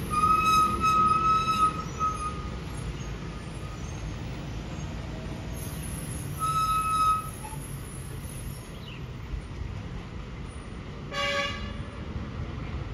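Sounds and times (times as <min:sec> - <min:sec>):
diesel lorry engines rumbling: 0:00.0 - 0:12.9
loud shrill tone: 0:06.3 - 0:07.6.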